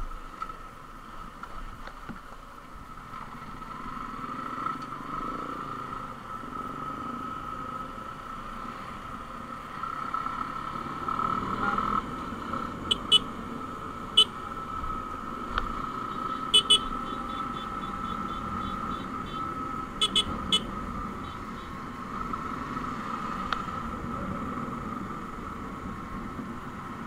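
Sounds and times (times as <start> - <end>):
motorcycle engine running: 9.2 - 27.0.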